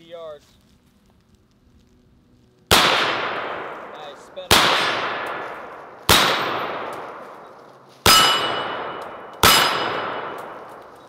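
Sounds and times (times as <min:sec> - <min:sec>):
bullets ringing on steel targets: 0:02.7 - 0:11.0
rifle shots: 0:02.7 - 0:11.0.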